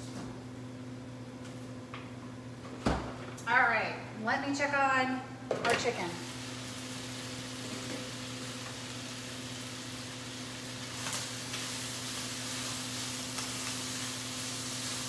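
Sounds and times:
chicken sizzling in a pan: 6.2s - 15.0s.

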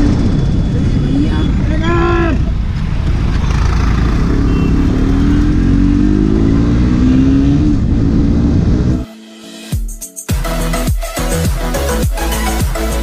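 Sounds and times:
motorcycle engine accelerating: 0.0s - 9.1s.

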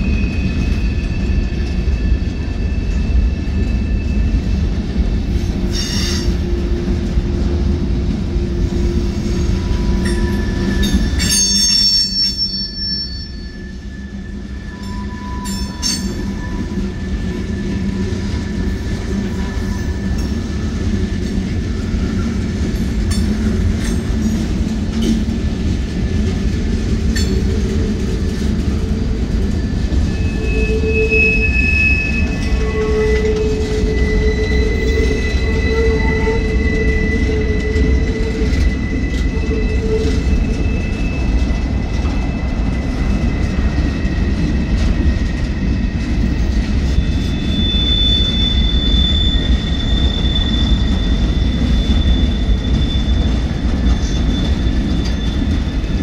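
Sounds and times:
train wheels rumbling on rails: 0.0s - 56.0s
high wheel squeals: 8.8s - 20.7s, 27.2s - 56.0s.

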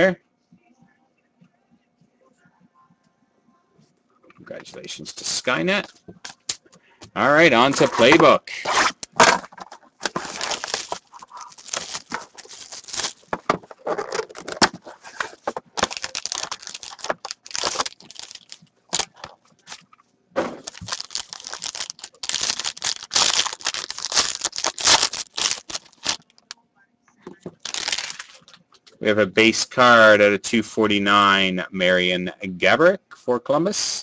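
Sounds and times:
plastic and foil wrapping crinkling: 7.5s - 19.9s, 20.6s - 26.6s, 27.4s - 28.7s.

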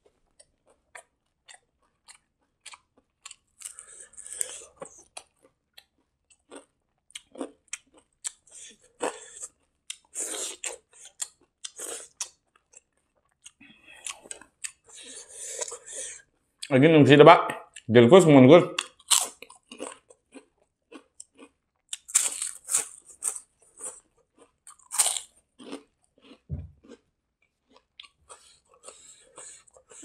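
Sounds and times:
close chewing with wet smacks: 0.3s - 3.9s.

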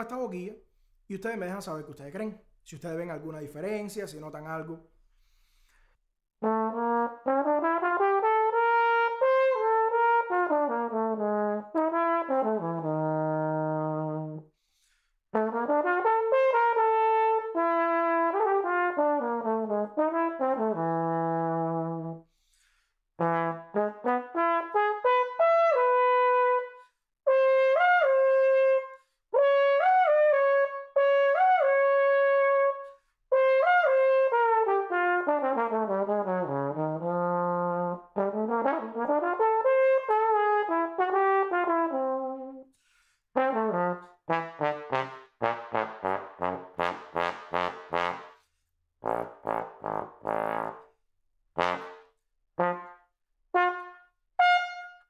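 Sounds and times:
trombone playing runs: 51.6s - 52.0s.

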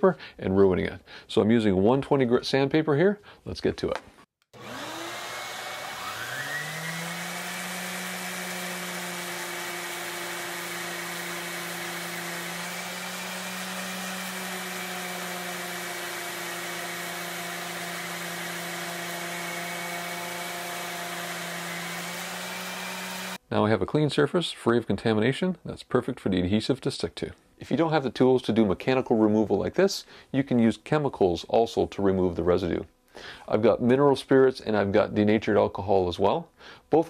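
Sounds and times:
orbital sander running: 4.6s - 23.4s.

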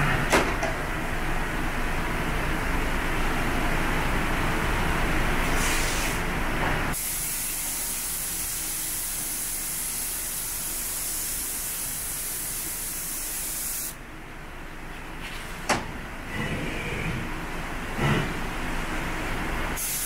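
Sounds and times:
spray gun hissing: 6.9s - 14.0s, 19.8s - 20.0s.

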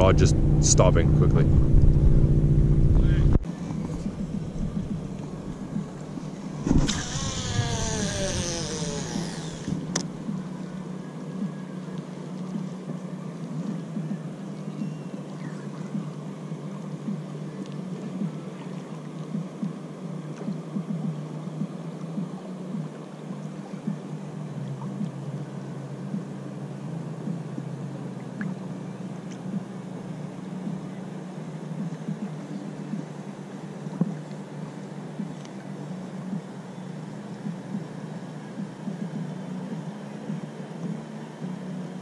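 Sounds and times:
outboard motor running: 0.0s - 11.4s
rushing noise with falling whine: 0.0s - 14.4s.

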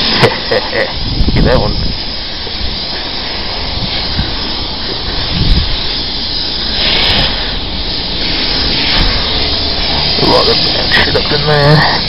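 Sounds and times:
pressure washer spraying water: 0.0s - 12.0s.

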